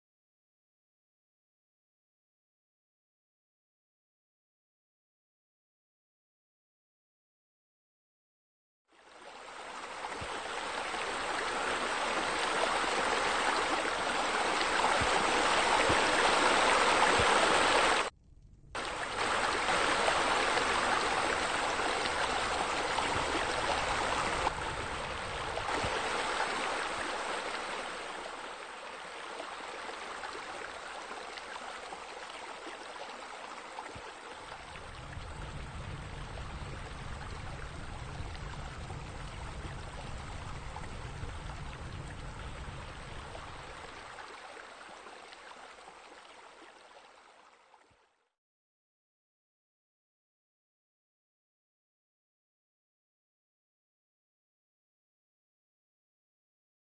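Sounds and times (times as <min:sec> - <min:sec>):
water pouring into pool: 0:09.0 - 0:18.1, 0:18.8 - 0:47.9
low rumble: 0:18.2 - 0:18.8.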